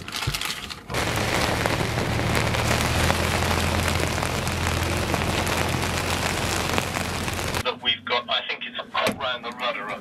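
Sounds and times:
rain hissing and pattering: 0.9 - 7.6
wind rumbling on microphone: 0.9 - 7.6.

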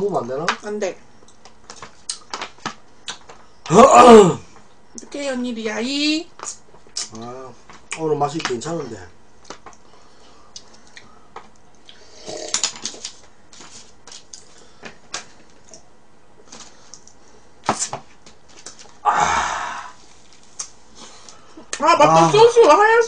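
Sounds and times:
chewing crisp clicks and crackles: 1.2 - 3.4, 10.5 - 12.0, 14.1 - 14.6, 16.8 - 17.2.

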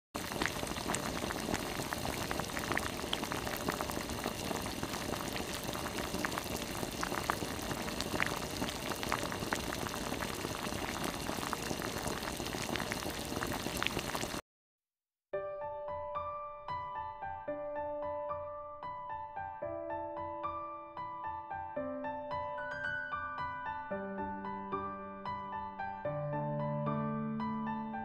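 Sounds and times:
broth bubbling in a pot: 0.2 - 14.4.

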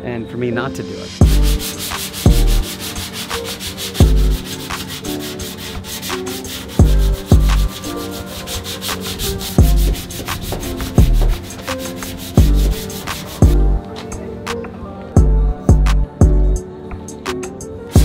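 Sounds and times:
electronic background music: 0.0 - 18.0
sandpaper scratching on metal: 1.2 - 13.6.

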